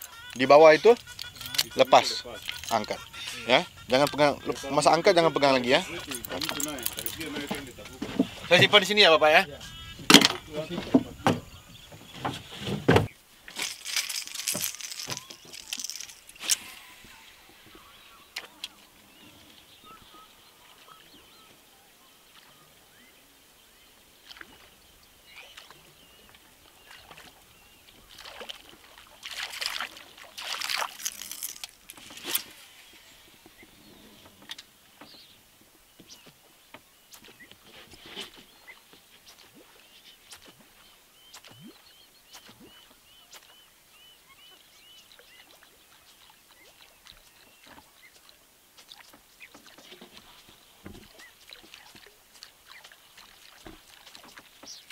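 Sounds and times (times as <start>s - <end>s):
boat knocking: 0.0s - 13.2s
water splashing: 0.0s - 35.1s, 37.1s - 54.9s
high chirping bird or insect: 0.0s - 35.4s, 38.5s - 48.4s.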